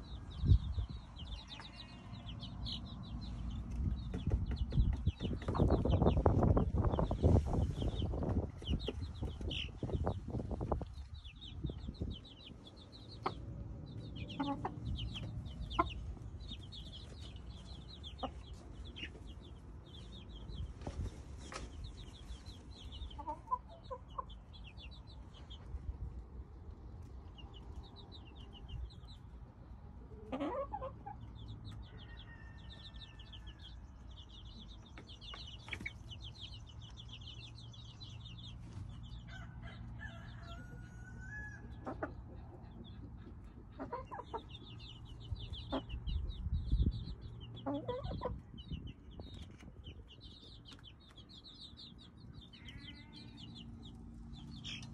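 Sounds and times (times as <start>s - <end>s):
chicks peeping: 0.0s - 54.9s
hen clucking: 13.0s - 19.5s, 22.9s - 24.8s, 30.0s - 32.4s, 39.2s - 50.0s, 52.3s - 54.9s.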